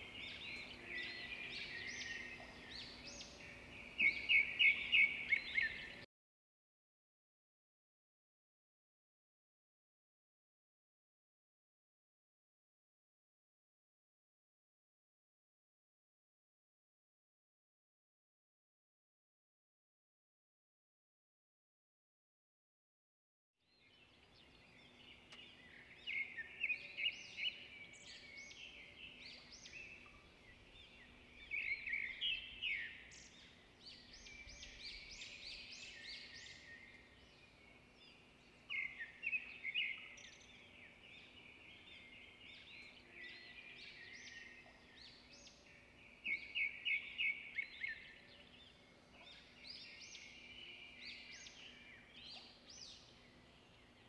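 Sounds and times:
small birds chirping: 0.0s - 6.1s, 23.7s - 54.0s.

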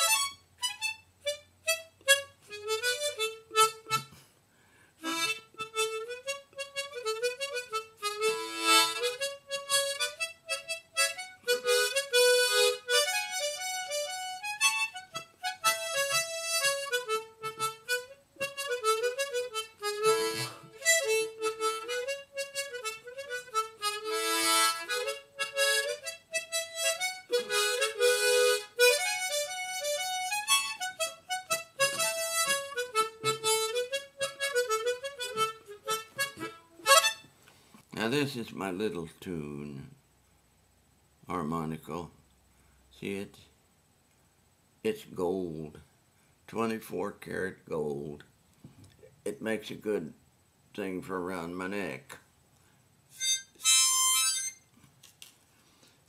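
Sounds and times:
harmonica melody: 0.0s - 4.2s, 5.0s - 37.3s, 53.1s - 54.7s.

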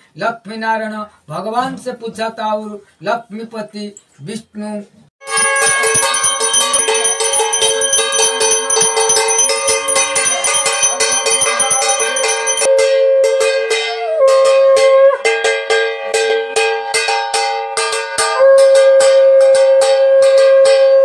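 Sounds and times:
long held tone: 5.2s - 16.6s
hand bells ringing: 5.2s - 21.0s.

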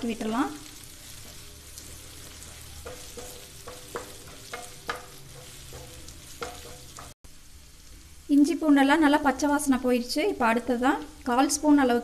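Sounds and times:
onions sizzling in oil: 0.0s - 12.0s
spatula knocking against pan: 2.8s - 7.1s.

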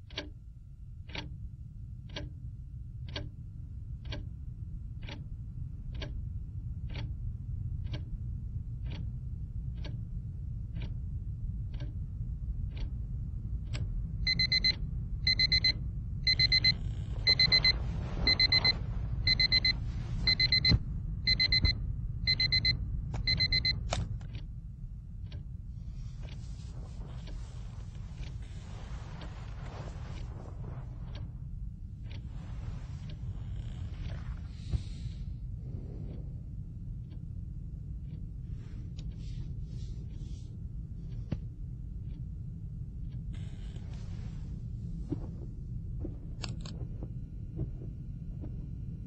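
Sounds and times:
steady low rumble: 0.0s - 49.0s
alarm clock ticking: 3.1s - 3.3s, 14.3s - 23.8s
alarm switch off: 14.3s - 24.0s
high electronic alarm beeps: 15.3s - 21.7s, 22.3s - 22.7s.

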